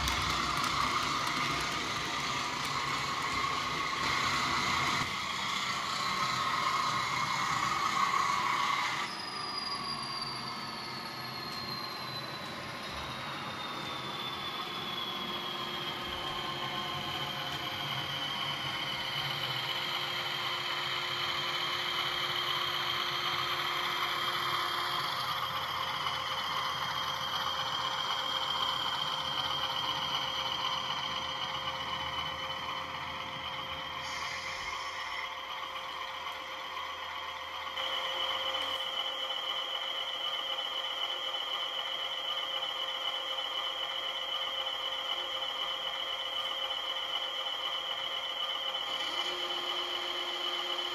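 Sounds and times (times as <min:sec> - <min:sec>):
wheels rumbling on track: 0:00.0 - 0:09.2
model train motor whine: 0:00.0 - 0:50.9.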